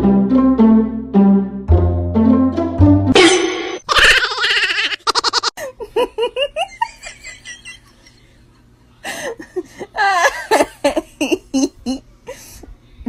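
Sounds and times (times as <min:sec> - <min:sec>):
high-pitched giggling: 0:03.9 - 0:08.0.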